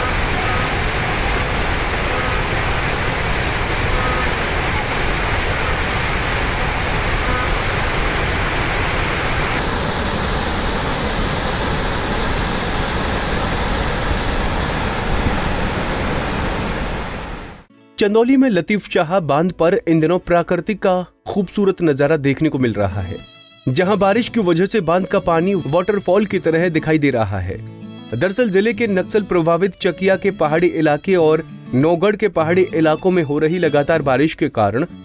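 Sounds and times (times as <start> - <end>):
water rushing over a dam: 0.0 - 17.7.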